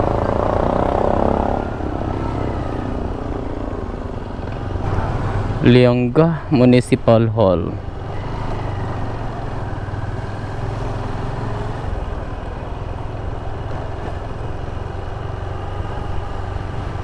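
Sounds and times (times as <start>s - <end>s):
motorcycle engine running: 0.0s - 5.7s
road and wind noise: 0.0s - 17.0s.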